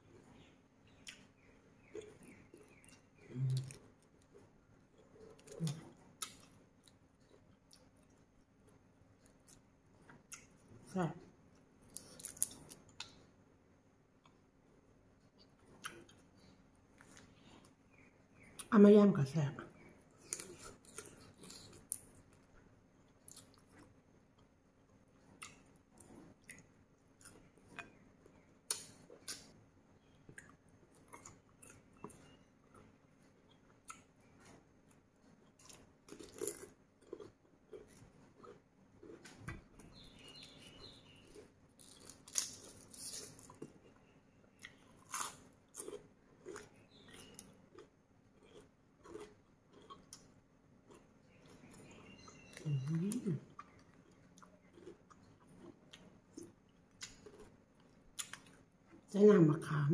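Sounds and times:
person chewing food: 0:00.4 - 0:10.6, 0:11.5 - 0:13.2, 0:15.2 - 0:18.7, 0:20.0 - 0:59.1
crisp crunches of biting: 0:35.6 - 0:39.3, 0:41.2 - 0:43.8, 0:44.7 - 0:50.3, 0:54.0 - 0:57.5.

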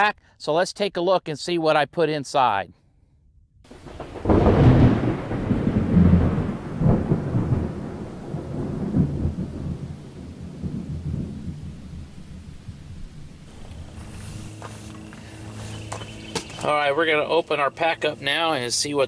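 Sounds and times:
rolling thunder: 0:03.7 - 0:14.0.

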